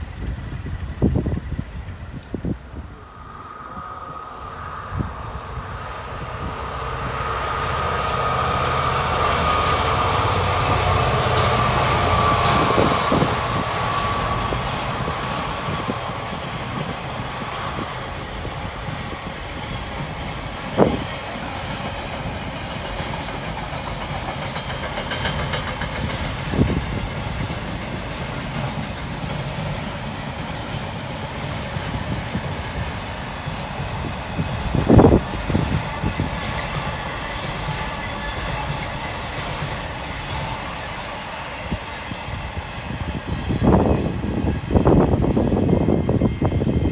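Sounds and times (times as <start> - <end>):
diesel locomotive engine: 0.0 - 46.9
train wheels clattering: 8.8 - 42.6.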